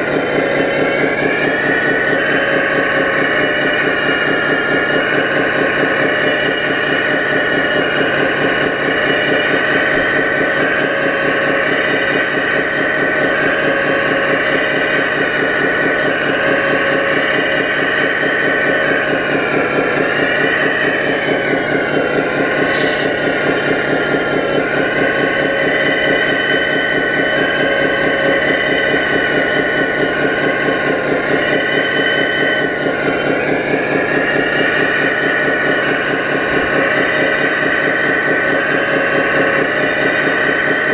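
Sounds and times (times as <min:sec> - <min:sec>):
high wavering whine: 0:00.0 - 0:40.9
model excavator running: 0:00.0 - 0:40.9.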